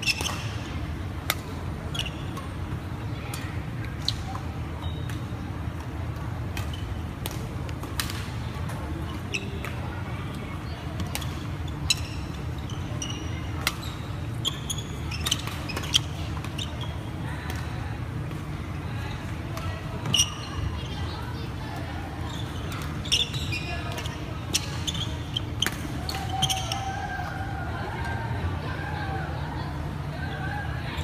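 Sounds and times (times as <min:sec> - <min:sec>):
rackets hitting shuttlecock: 0:00.0 - 0:00.6, 0:06.5 - 0:08.9, 0:25.6 - 0:26.8
low hum of hall: 0:00.0 - 0:31.0.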